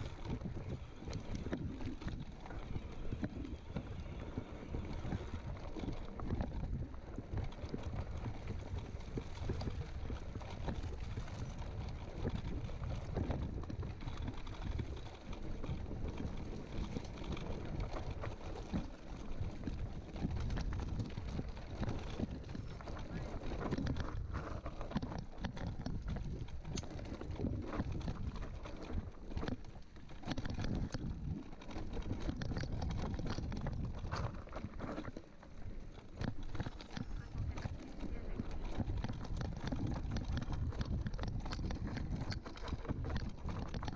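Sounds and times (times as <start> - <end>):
bike knocking and rattling: 0.0 - 43.9
bike tyres rolling on dirt: 0.0 - 43.9
wind buffeting microphone: 36.0 - 43.9.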